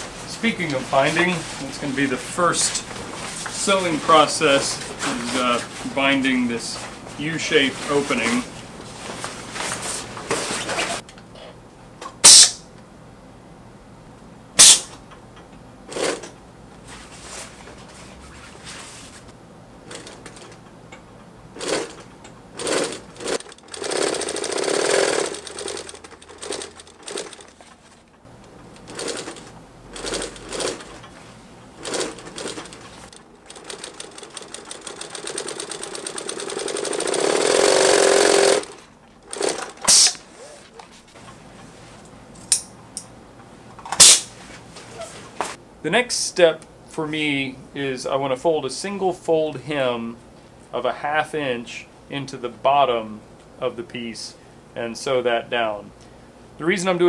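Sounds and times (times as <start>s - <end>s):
sewing machine stitching: 21.6s - 28.0s, 28.7s - 31.2s, 31.8s - 40.8s.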